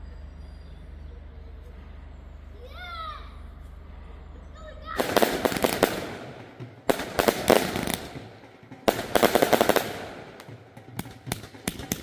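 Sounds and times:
fireworks bang and crackle: 5.0s - 12.0s.

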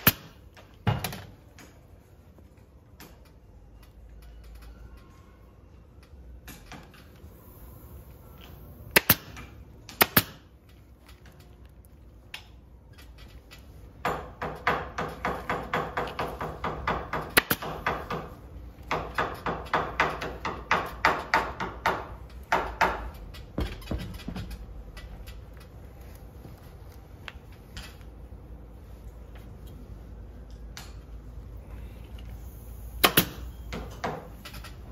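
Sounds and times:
pneumatic staple gun firing: 0.0s - 0.4s, 8.9s - 10.5s, 17.2s - 17.8s, 33.0s - 33.6s.

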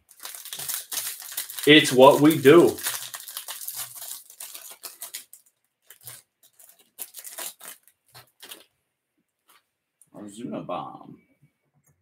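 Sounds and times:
plastic wrapper tearing and crinkling: 0.0s - 8.7s.

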